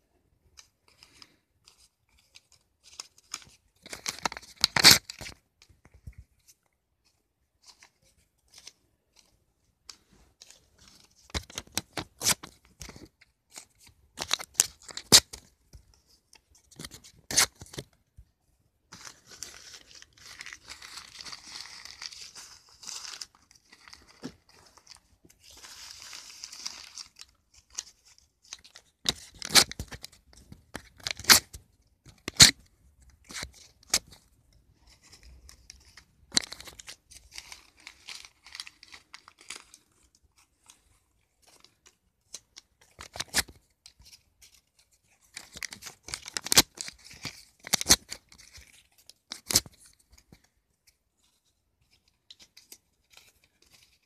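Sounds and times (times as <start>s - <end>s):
paper crumpling and rustling: 0.5s - 18.3s, 18.9s - 54.0s.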